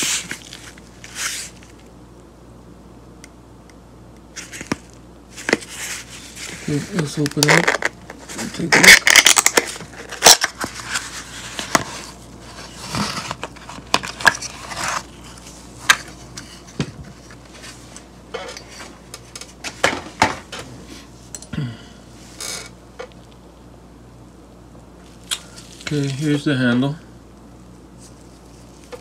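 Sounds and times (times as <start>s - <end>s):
cardboard rustling and scraping: 0.0s - 1.8s, 4.4s - 21.2s.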